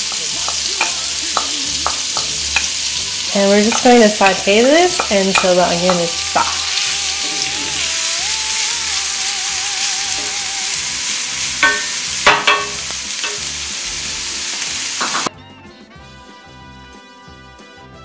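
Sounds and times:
onion sizzling in a skillet: 0.0 - 15.3
music: 0.0 - 18.0.

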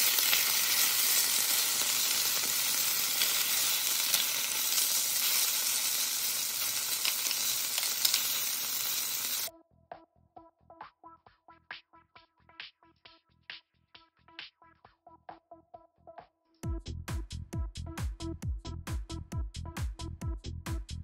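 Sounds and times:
meat sizzling in a pan: 0.0 - 9.5.

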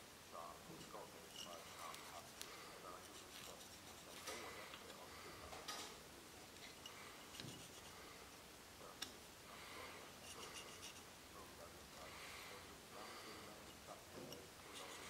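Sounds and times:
pencil scratching on metal: 0.8 - 4.5, 6.6 - 8.0, 10.2 - 11.0, 13.6 - 15.0.

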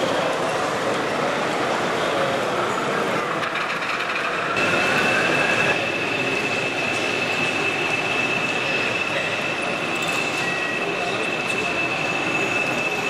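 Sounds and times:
model train rolling on track: 0.0 - 13.0
high motor whine: 4.4 - 13.0.

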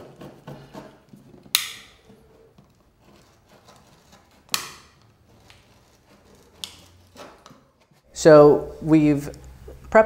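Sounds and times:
metal scraper rasping: 1.9 - 8.1
faint scratching: 2.1 - 4.5, 5.1 - 9.0.

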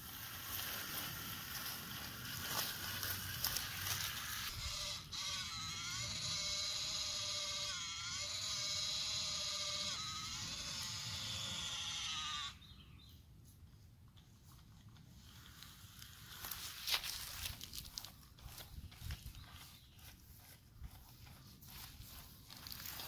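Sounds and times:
toy truck motor whining: 0.1 - 12.8.

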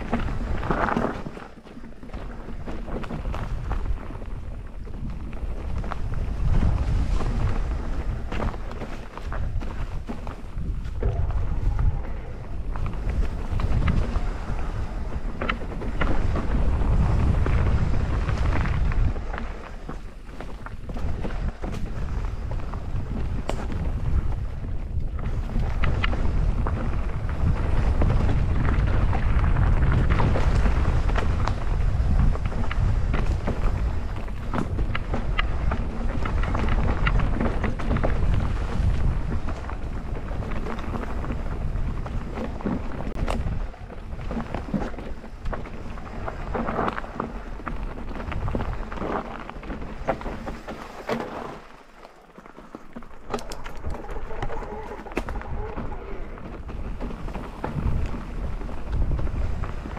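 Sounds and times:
bike tyres clattering on trail: 0.0 - 59.9
wind rumbling on microphone: 0.0 - 59.9.

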